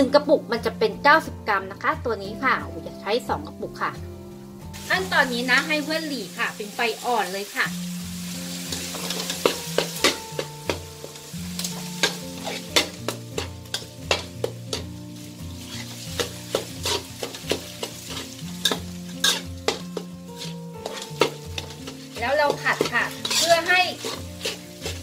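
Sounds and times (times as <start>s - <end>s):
light sizzle: 4.3s - 25.0s
metal spatula scraping wok: 8.1s - 25.0s.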